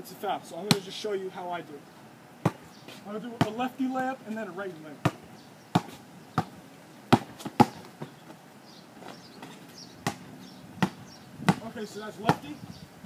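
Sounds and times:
basketball bouncing on asphalt: 0:00.7 - 0:01.0, 0:02.4 - 0:02.8, 0:03.4 - 0:04.1, 0:05.0 - 0:08.2, 0:10.0 - 0:12.6.

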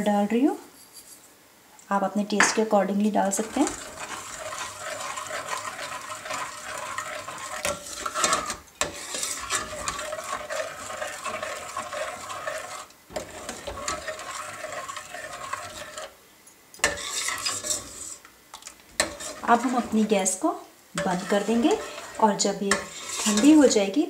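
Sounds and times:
ladle stirring and scraping pot: 0:03.2 - 0:16.2, 0:16.8 - 0:20.4, 0:21.0 - 0:23.9
ladle clacking on pot: 0:03.4 - 0:16.1, 0:16.8 - 0:17.9, 0:19.0 - 0:19.9.

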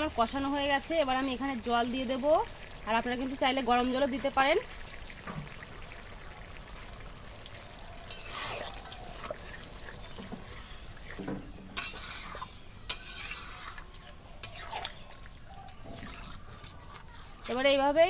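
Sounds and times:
ladle stirring curry in pot: 0:07.5 - 0:17.5.

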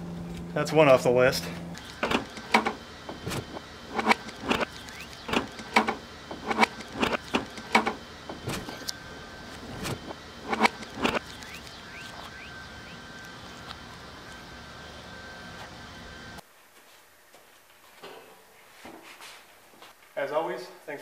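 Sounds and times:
sharp clicks: 0:01.7 - 0:09.0, 0:09.8 - 0:12.3
car trunk unlatching: 0:05.3 - 0:08.9.

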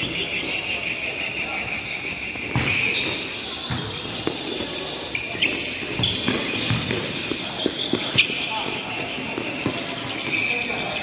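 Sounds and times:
ball kicked and bouncing on court: 0:02.4 - 0:10.8.

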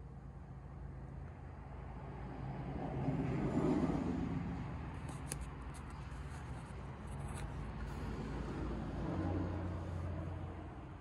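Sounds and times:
paper pages rustling: 0:05.0 - 0:08.0.

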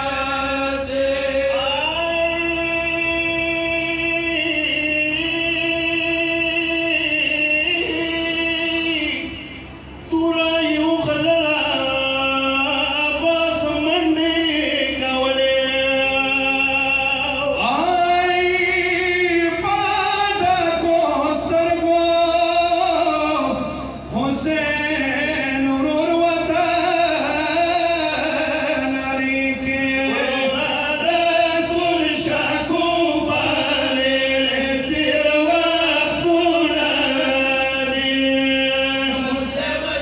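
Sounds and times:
men singing lament through pa: 0:00.0 - 0:40.0.

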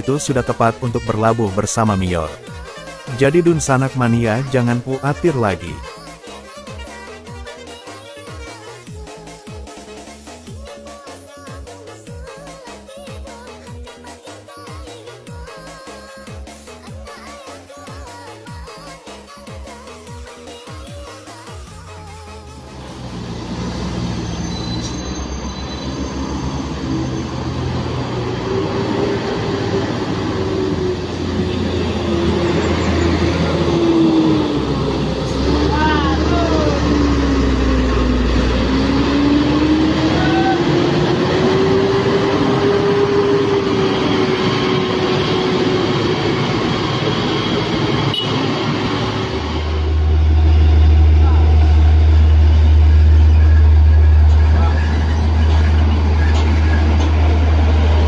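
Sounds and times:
heavy diesel bus engine: 0:00.0 - 0:07.7, 0:21.3 - 0:58.0
high-pitched whine: 0:24.1 - 0:58.0.

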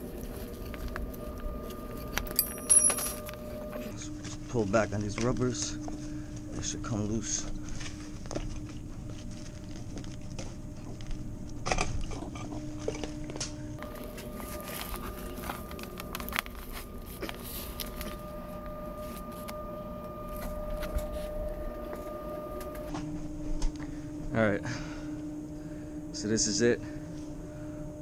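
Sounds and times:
steady machine hum: 0:00.0 - 0:28.0.

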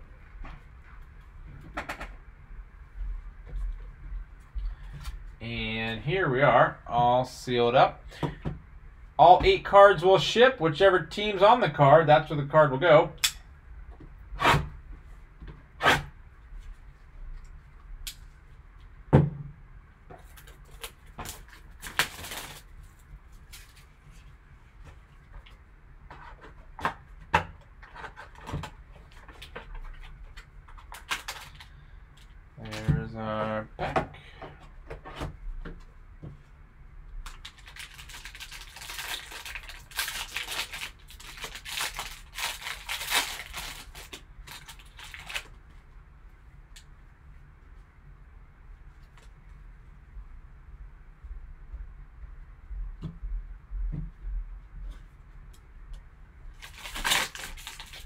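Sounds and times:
plastic shrink wrap crinkling: 0:20.2 - 0:24.0, 0:30.8 - 0:31.8, 0:37.2 - 0:45.6, 0:56.6 - 0:58.0.

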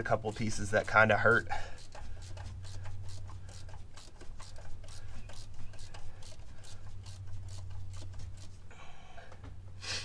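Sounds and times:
socket tool clicking and rubbing: 0:00.0 - 0:08.6
steady low hum: 0:00.0 - 0:10.0.

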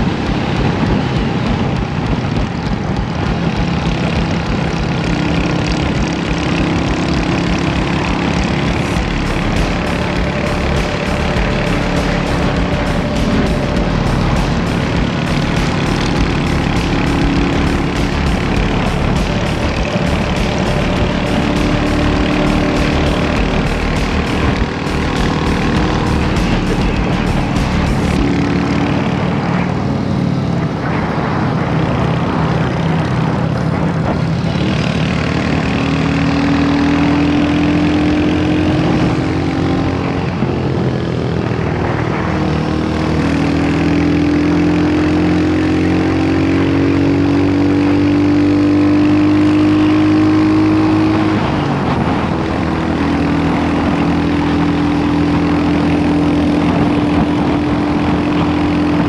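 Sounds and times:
motorcycle engine running: 0:00.0 - 0:59.0
wind and road rush: 0:00.0 - 0:59.0.

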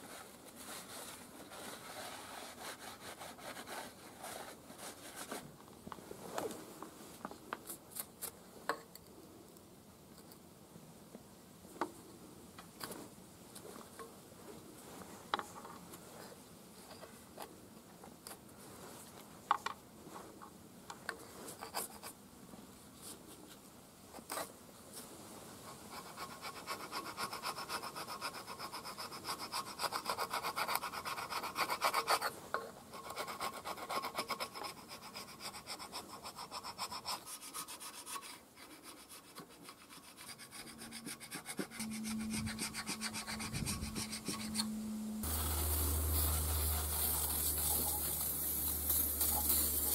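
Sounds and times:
scraper scraping metal: 0:37.1 - 0:49.9.

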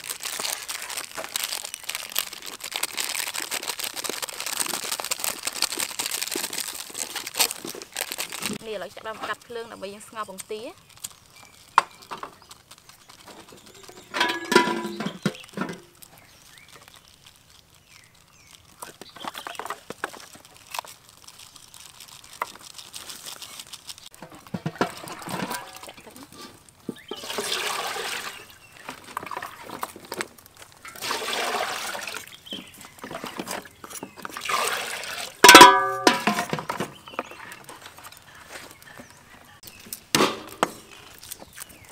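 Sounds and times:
water sloshing in basin: 0:27.1 - 0:30.0, 0:30.8 - 0:32.3, 0:33.0 - 0:36.6.

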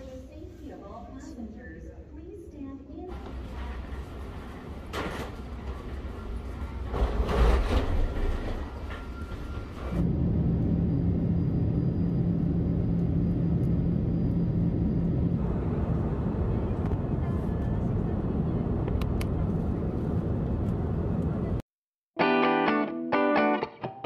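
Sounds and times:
airliner cabin hum: 0:03.1 - 0:21.6.

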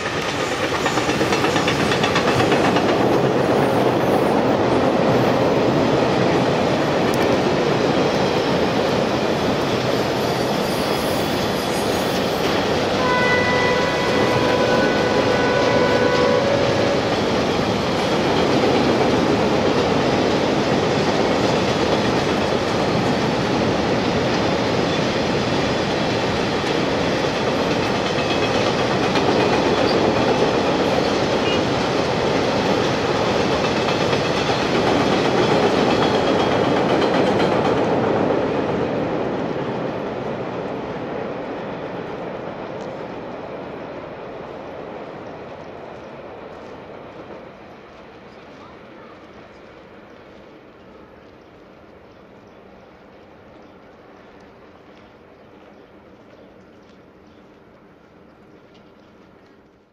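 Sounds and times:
train wheels rumbling on rails: 0:00.0 - 0:59.9
train horn note: 0:13.0 - 0:17.1.

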